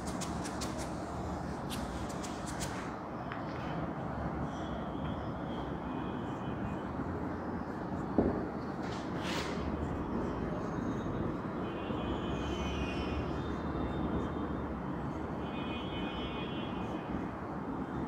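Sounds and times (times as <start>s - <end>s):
marker squeaking on whiteboard: 0.0s - 3.8s.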